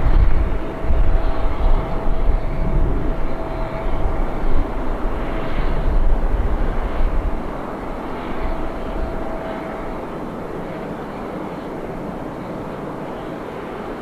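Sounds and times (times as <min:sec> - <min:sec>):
jet engines rumbling with whine: 0:00.0 - 0:14.0.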